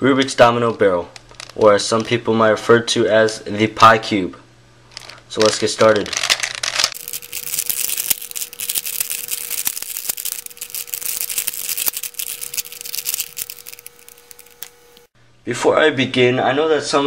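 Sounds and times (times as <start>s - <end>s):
plastic puzzle clicking: 5.9s - 14.7s.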